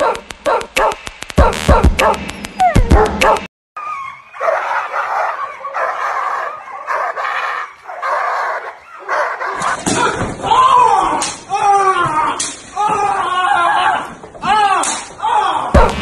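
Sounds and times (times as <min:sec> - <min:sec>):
music with a sharp beat: 0:00.0 - 0:03.5, 0:15.8 - 0:16.0
dog barking aggressively: 0:04.4 - 0:09.8.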